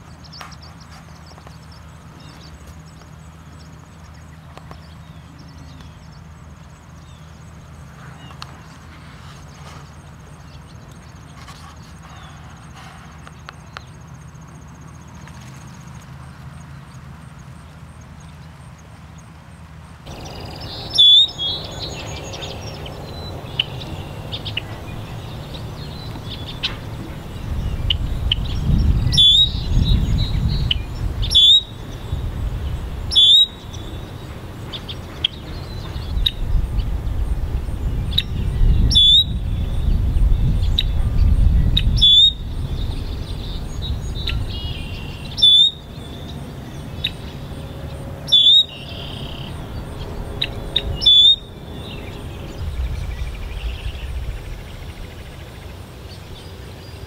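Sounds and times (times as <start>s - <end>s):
blackbird short loud calls: 20.1s - 28.4s
low rumble: 20.1s - 45.1s
faint bird chirps: 20.1s - 47.4s, 48.3s - 49.6s, 50.4s - 55.2s.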